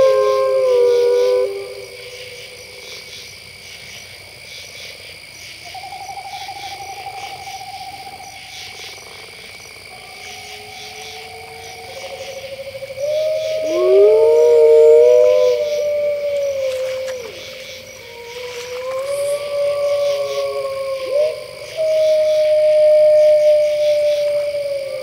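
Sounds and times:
wolves howling: 0.0 - 3.0, 9.9 - 25.0
chirping night chorus: 0.0 - 25.0.

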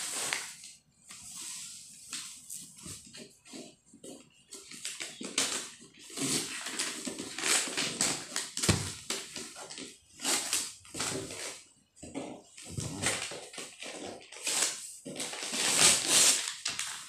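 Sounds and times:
wrapping paper crinkling: 4.6 - 11.6, 12.8 - 17.0.

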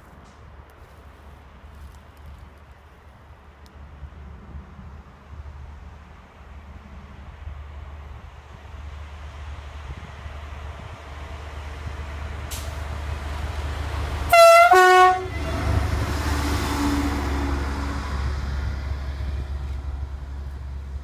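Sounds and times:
rail vehicle passing: 0.0 - 21.0
two-note horn blast: 14.3 - 15.7.

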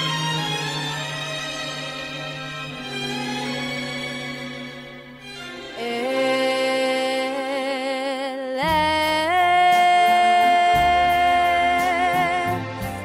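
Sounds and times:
woman singing with vibrato: 5.7 - 13.0
bass line: 8.6 - 13.0.

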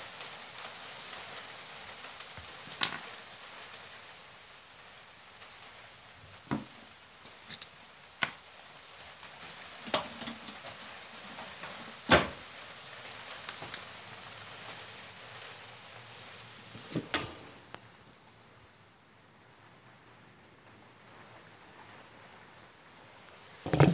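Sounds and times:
steady background hiss: 0.0 - 23.9
tools knocking on hard tabletop: 23.7 - 23.9.

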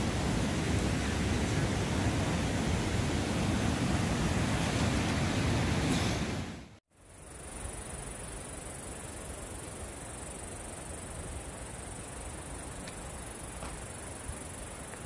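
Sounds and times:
low rushing noise: 0.0 - 6.8
high-pitched insect chorus: 7.0 - 15.0.

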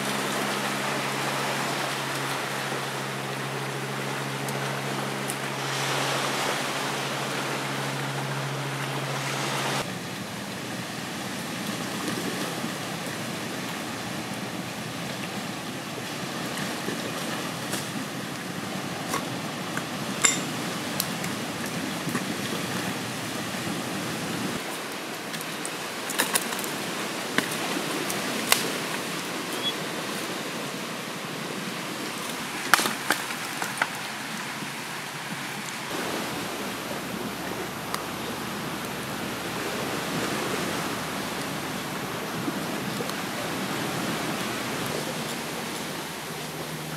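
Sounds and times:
sea surf on rocky shore: 0.0 - 46.9
low steady hum: 35.8 - 46.9.

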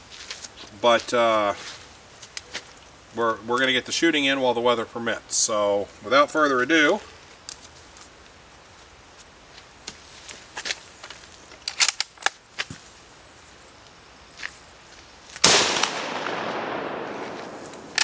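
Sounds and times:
rifle shot: 15.4 - 18.0.

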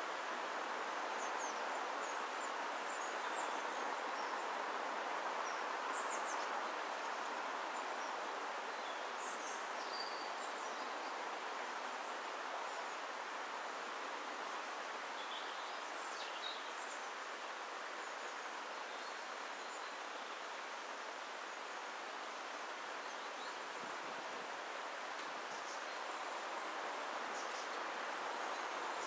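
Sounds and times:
steady background hiss: 0.0 - 29.0.

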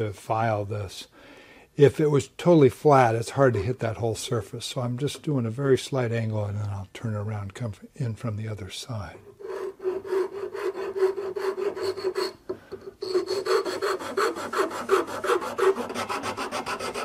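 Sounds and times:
rasp scraping wood: 9.2 - 17.0.

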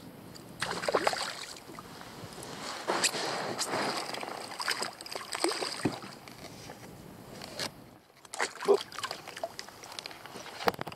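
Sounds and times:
water splashing and dripping: 0.6 - 1.6, 4.0 - 6.2, 8.2 - 10.7.

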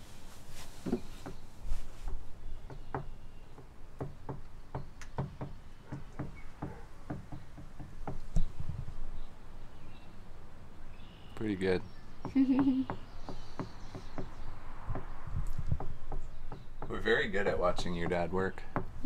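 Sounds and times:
hammering on wood: 2.1 - 8.2, 12.2 - 19.0.

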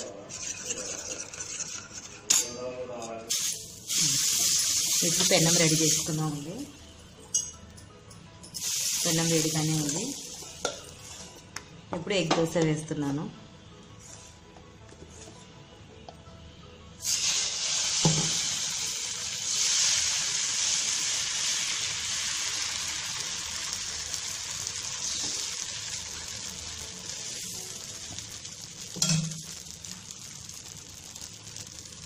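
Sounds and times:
batter sizzling on a pan: 0.0 - 2.6, 3.3 - 6.6, 8.6 - 11.2, 17.0 - 32.0.

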